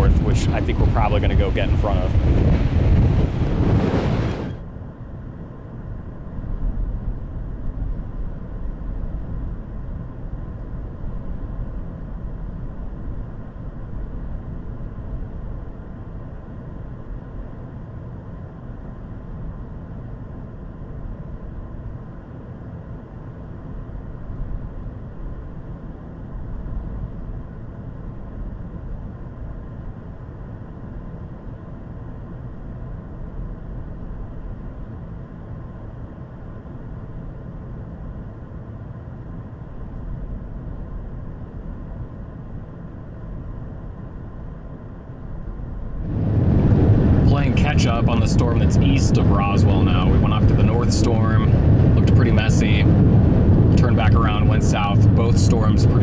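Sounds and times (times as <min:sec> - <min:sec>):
low rumbling noise: 0:00.0 - 0:56.0.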